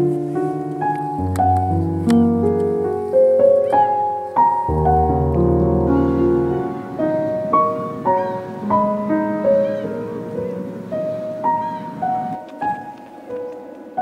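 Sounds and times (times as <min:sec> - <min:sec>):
piano notes and chords: 0:00.0 - 0:14.0
deep bass piano note: 0:04.6 - 0:09.2.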